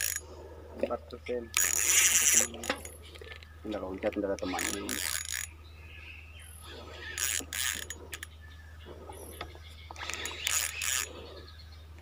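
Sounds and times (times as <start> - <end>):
fishing reel gears clicking: 0.0 - 0.2, 1.6 - 3.4, 4.4 - 5.5, 7.0 - 8.3, 10.0 - 11.1.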